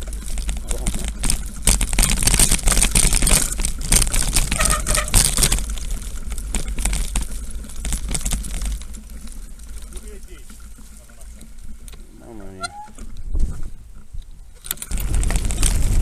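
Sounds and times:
crunching and rattling over rough ground: 0:00.0 - 0:16.0
wind buffeting microphone: 0:14.9 - 0:16.0.

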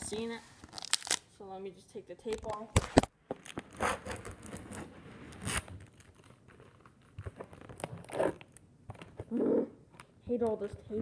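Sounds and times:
packing tape ripping: 0:00.6 - 0:01.2, 0:02.8 - 0:08.6.

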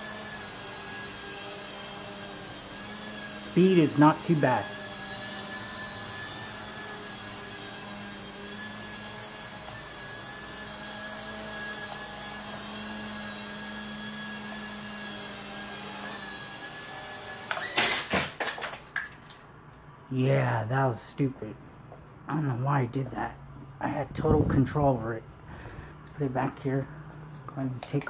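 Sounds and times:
toy helicopter rotors whining: 0:00.0 - 0:18.2.

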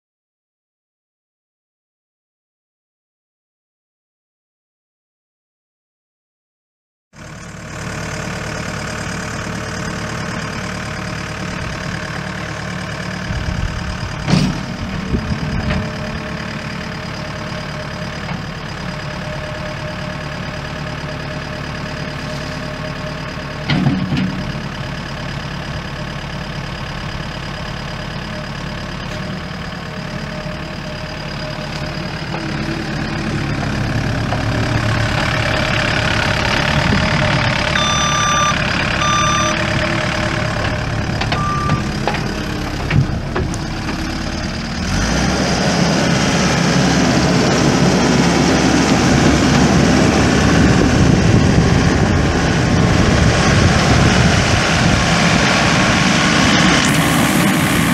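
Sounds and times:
diesel engine idling: 0:07.2 - 0:57.9.

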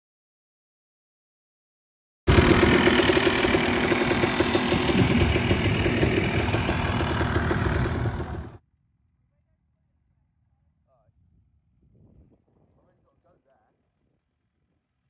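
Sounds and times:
motocross bike engine running: 0:02.3 - 0:08.6.

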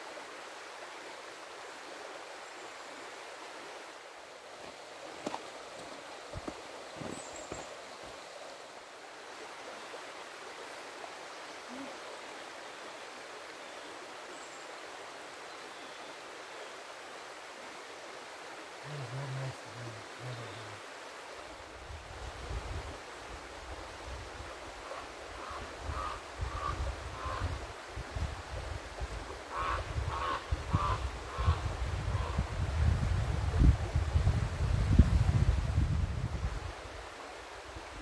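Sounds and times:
river rushing over rocks: 0:00.0 - 0:15.5.

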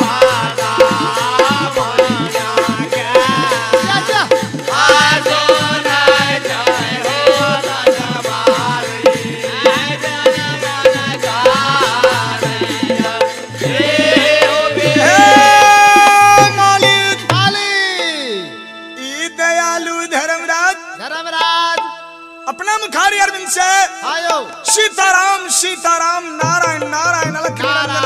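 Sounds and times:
hand drum beat: 0:00.0 - 0:17.6
harmonium: 0:00.0 - 0:28.0.

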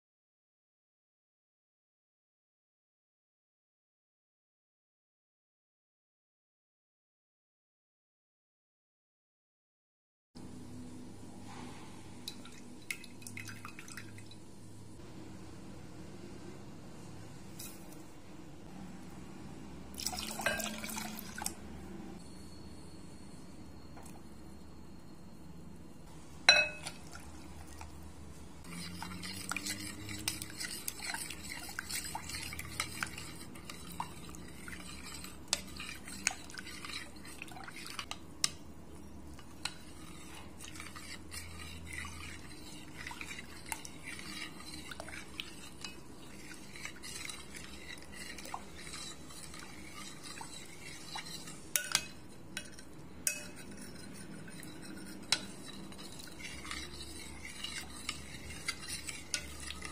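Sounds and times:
spoon scraping and clinking pot: 0:17.5 - 0:18.0, 0:20.0 - 0:21.6, 0:26.4 - 0:27.9, 0:28.6 - 0:59.9.

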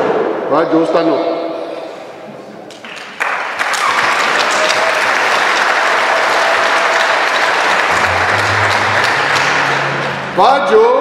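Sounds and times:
crowd applauding: 0:02.8 - 0:10.4
low steady musical tones: 0:07.4 - 0:11.0.

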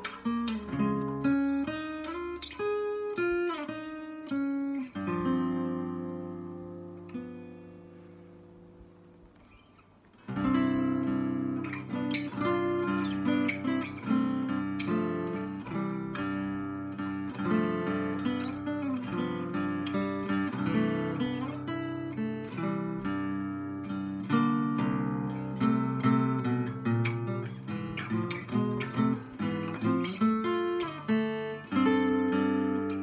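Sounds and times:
acoustic guitar playing: 0:00.0 - 0:33.0.

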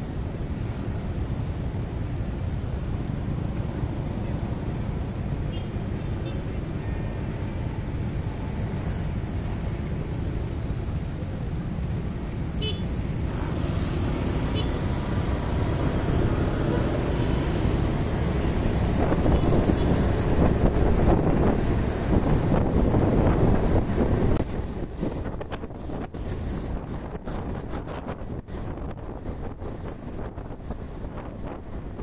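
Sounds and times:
motorbike engines idling and passing: 0:00.0 - 0:32.0
wind buffeting microphone: 0:13.5 - 0:32.0.

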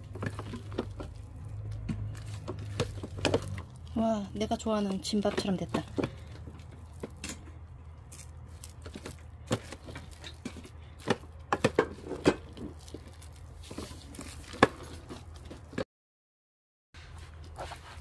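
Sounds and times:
paddle tapping and scraping pot: 0:00.0 - 0:03.8
rice paddle squishing rice: 0:00.0 - 0:07.3, 0:07.9 - 0:15.5
low steady hum: 0:00.0 - 0:15.8.

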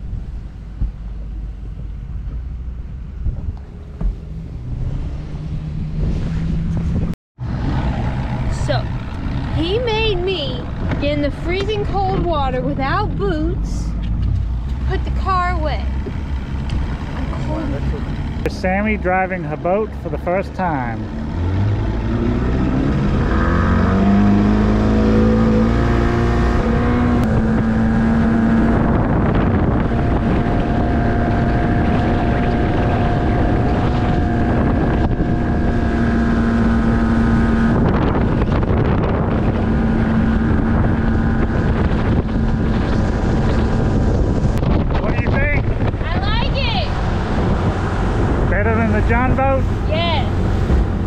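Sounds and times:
wind buffeting microphone: 0:00.0 - 0:20.0, 0:21.3 - 0:51.0
outboard motor revving: 0:02.4 - 0:51.0.

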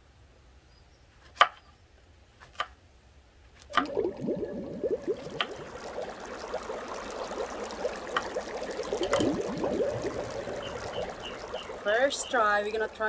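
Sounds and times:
bubbling water pops: 0:03.7 - 0:13.0.

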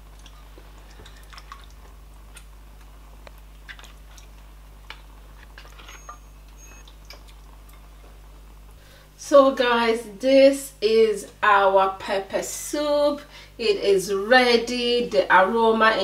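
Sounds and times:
ladle splashing and clicking: 0:00.0 - 0:05.8, 0:06.5 - 0:07.9.

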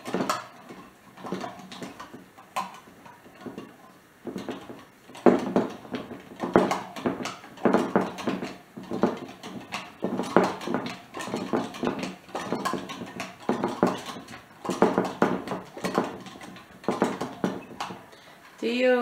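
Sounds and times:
butter churn plunger splashing: 0:00.0 - 0:18.4.

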